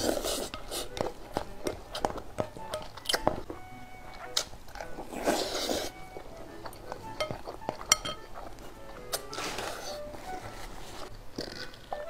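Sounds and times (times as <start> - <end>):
faint background music: 0.0 - 12.0
wet chewing: 0.0 - 12.0
slurp: 5.1 - 5.9.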